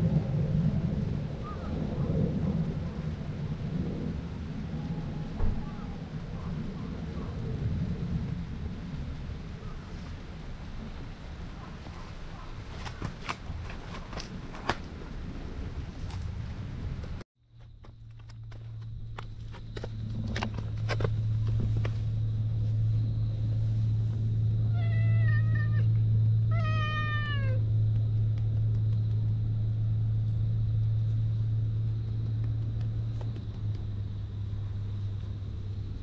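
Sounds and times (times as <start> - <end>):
steady low rumble: 0.0 - 36.0
cat meowing: 24.7 - 25.9, 26.5 - 27.6.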